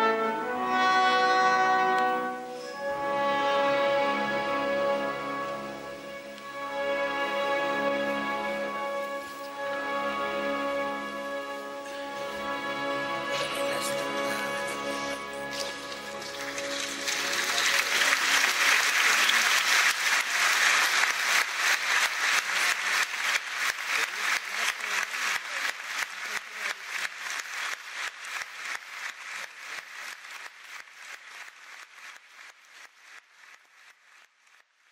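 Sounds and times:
audience applauding: 11.2s - 34.9s.

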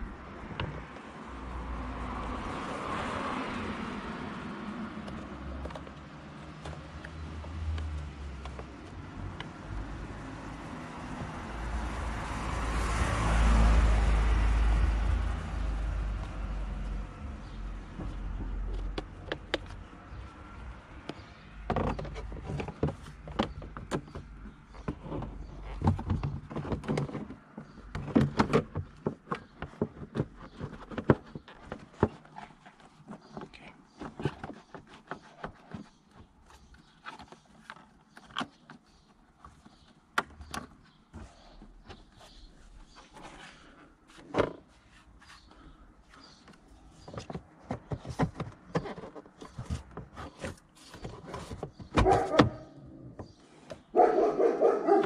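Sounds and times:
vehicle passing: 9.0s - 17.8s, 54.0s - 55.0s
plastic knocks and clicks: 17.4s - 20.3s, 21.0s - 42.4s, 46.2s - 53.8s.

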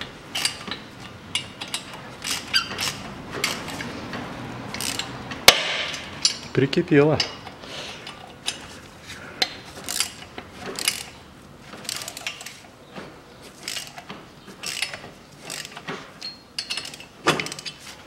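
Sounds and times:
ratchet wrench clicking: 1.3s - 3.7s, 4.7s - 5.1s, 9.8s - 10.2s, 10.8s - 11.2s, 13.6s - 14.0s, 14.6s - 17.8s.

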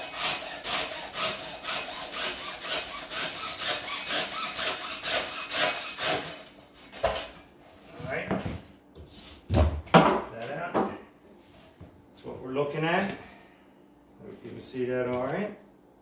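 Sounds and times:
hand saw cutting rope: 0.0s - 6.5s.

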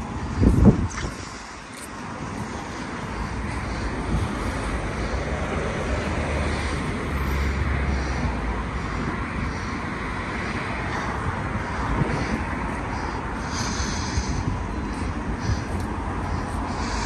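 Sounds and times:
outdoor background rushing noise: 0.0s - 17.0s.

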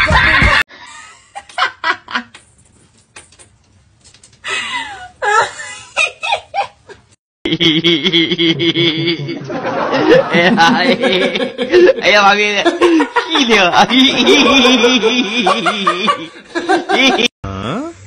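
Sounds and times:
people giggling and laughing: 7.5s - 12.0s, 12.6s - 17.3s.

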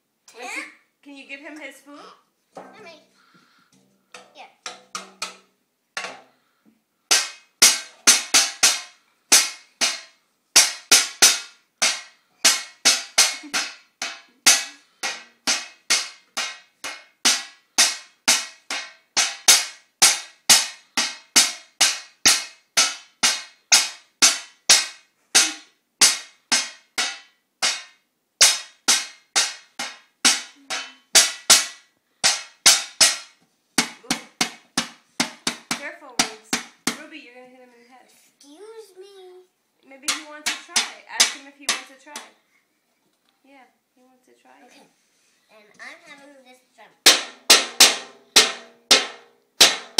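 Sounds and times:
toy drums banged with spoons: 4.1s - 6.5s, 7.1s - 37.2s, 39.9s - 42.4s, 47.0s - 49.9s.

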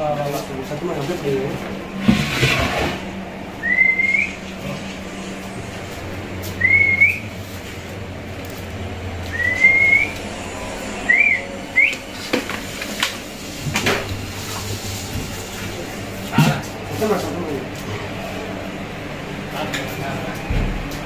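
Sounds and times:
low steady hum: 0.0s - 19.8s
rising whistled notes: 3.6s - 4.6s, 6.5s - 7.4s, 9.3s - 12.2s.

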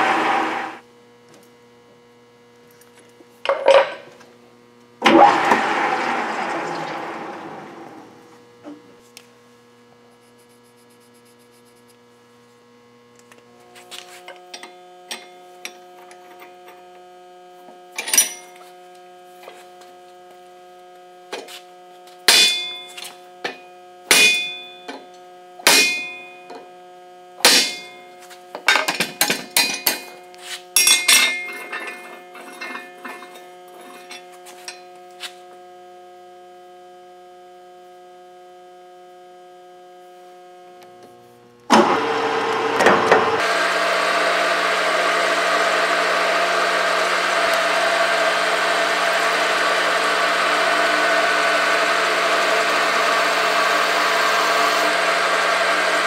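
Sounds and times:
electrical hum: 0.0s - 28.8s
metal clangs at a vise: 22.3s - 22.9s, 23.5s - 25.0s, 25.7s - 26.3s, 27.5s - 28.0s, 30.8s - 33.3s.

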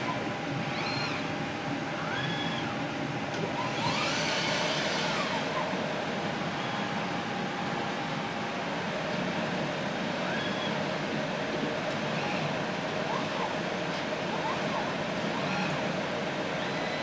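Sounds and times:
robot arm motors whining: 0.0s - 5.9s, 10.2s - 10.9s, 12.0s - 17.0s
lab equipment hum: 0.0s - 17.0s.

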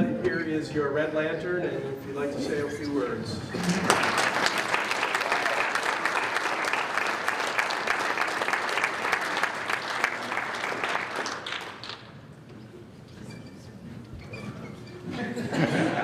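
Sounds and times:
audience applauding: 3.5s - 12.2s.

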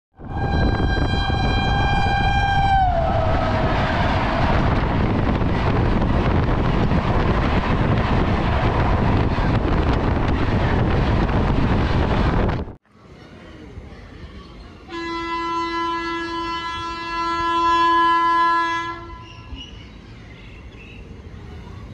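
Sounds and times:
train horn: 0.2s - 4.9s, 14.9s - 19.5s
passing train coaches rumbling: 0.2s - 21.9s.

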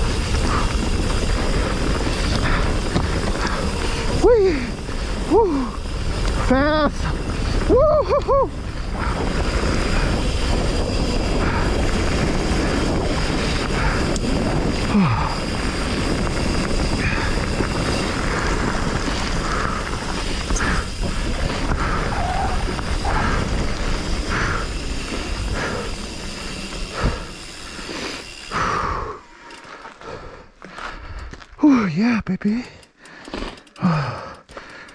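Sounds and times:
wind buffeting microphone: 0.0s - 29.0s
mountain bike rumbling on dirt: 0.0s - 31.7s, 32.4s - 34.9s
bike rattles: 0.0s - 34.9s.

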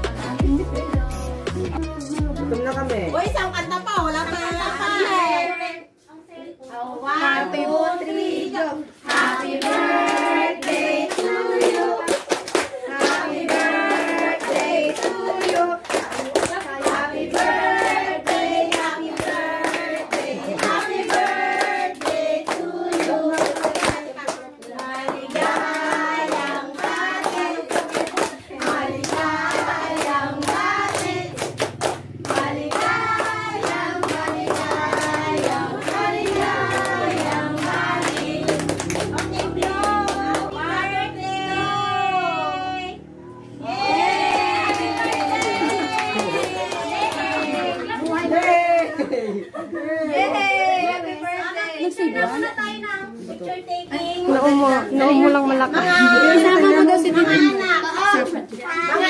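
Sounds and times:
group singing: 7.0s - 51.3s
hands clapping: 9.1s - 40.5s, 44.6s - 48.9s.

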